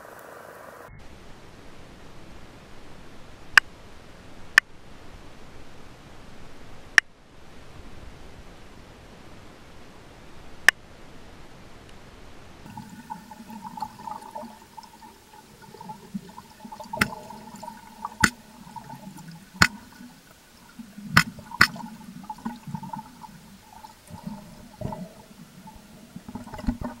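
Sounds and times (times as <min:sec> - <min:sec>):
underwater water noise: 0:00.0 - 0:07.7, 0:12.5 - 0:27.0
stingray clicking underwater: 0:12.8 - 0:27.0.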